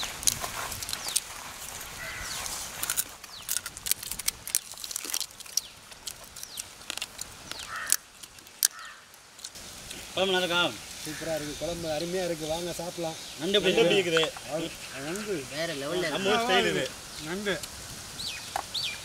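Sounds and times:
crunching fried food: 0.0 - 9.6.

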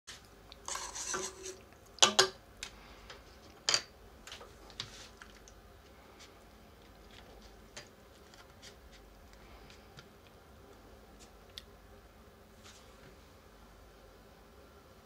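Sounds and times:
water swishing in frying pan: 0.1 - 1.7
kitchenware clacking: 0.7 - 2.4.

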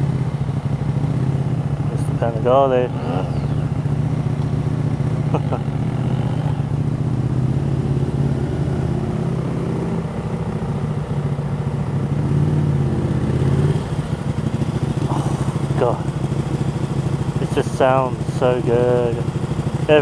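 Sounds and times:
motorcycle engine at low revs: 0.0 - 20.0.

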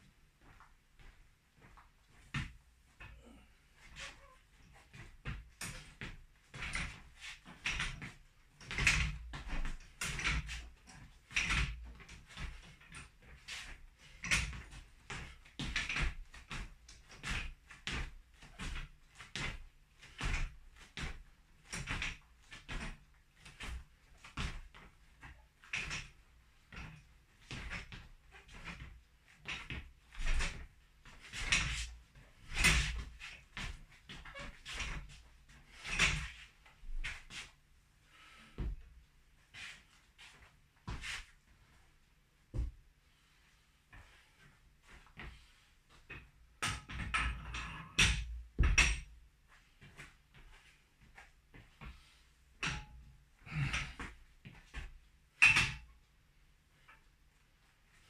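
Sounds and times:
gym gear knocking and thumping: 5.2 - 13.1, 14.0 - 37.2, 46.1 - 49.2.

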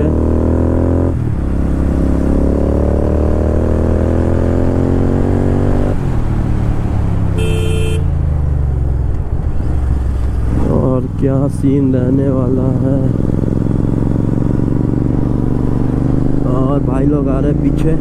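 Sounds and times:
motorcycle engine accelerating: 0.0 - 18.0
short horn beep: 7.4 - 8.1.

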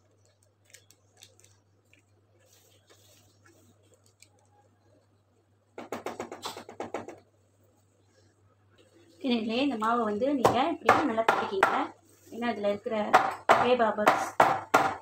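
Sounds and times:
baking tray knocking on table: 5.8 - 7.2, 10.4 - 11.9, 13.1 - 15.0.

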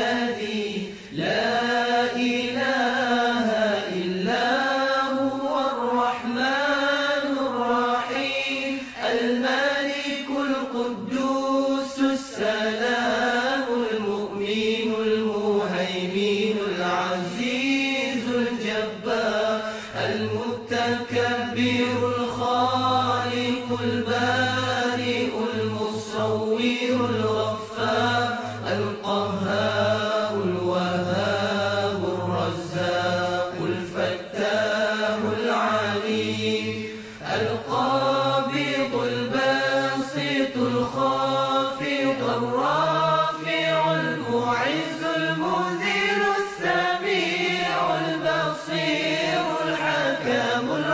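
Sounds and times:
person chanting: 0.0 - 50.9.

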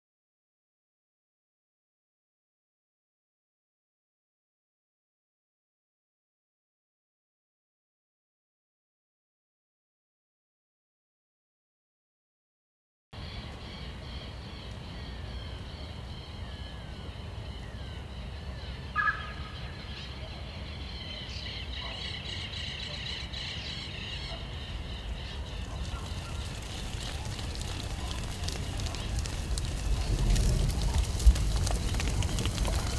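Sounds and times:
birds calling and chirping: 13.2 - 32.9
steady low rumble: 26.4 - 32.9.

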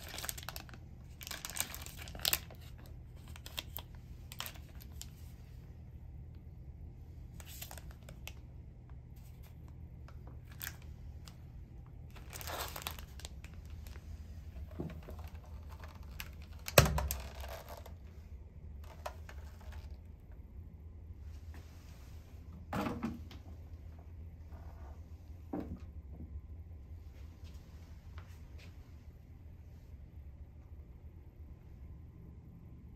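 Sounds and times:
plastic wrappers crinkling: 0.0 - 5.3, 7.4 - 8.4, 10.3 - 11.4, 12.1 - 18.0
steady low hum: 0.0 - 32.9.

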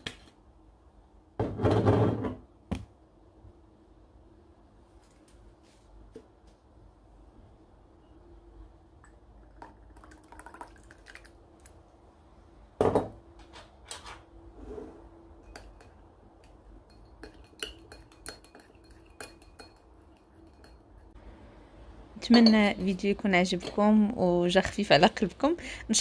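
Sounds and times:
spoon clinking against glass bowl: 15.4 - 21.1, 22.2 - 22.8.

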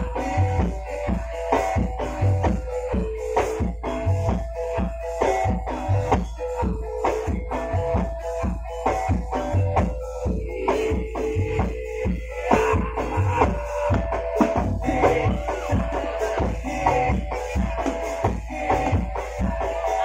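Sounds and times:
ringing pitched percussion tones: 0.0 - 20.0
drum strokes: 12.0 - 19.6.

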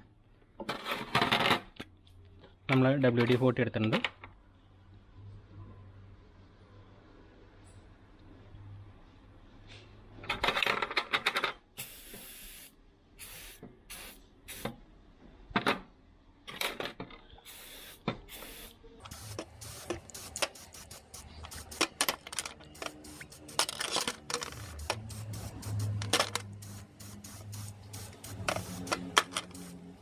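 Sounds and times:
aerosol spray bursts: 11.8 - 14.7, 17.5 - 23.7, 24.3 - 30.0.

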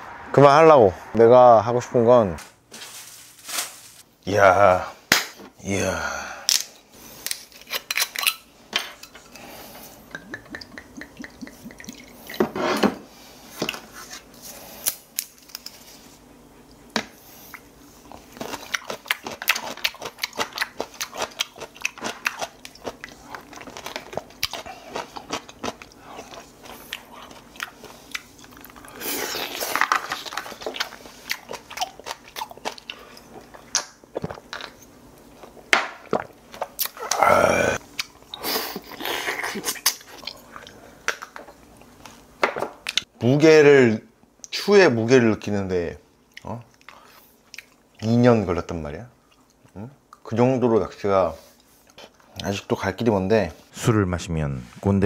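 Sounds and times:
chewing: 10.1 - 12.4, 17.5 - 37.2, 37.8 - 42.2, 46.3 - 48.0.

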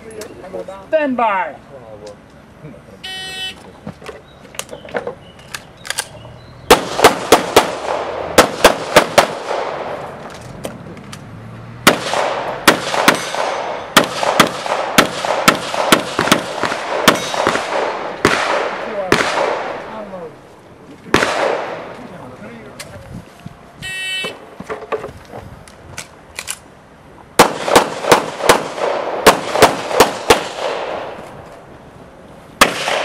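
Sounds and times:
pistol shots with echo: 6.7 - 10.0, 11.8 - 19.9, 21.1 - 21.9, 27.4 - 31.2, 32.6 - 33.0.

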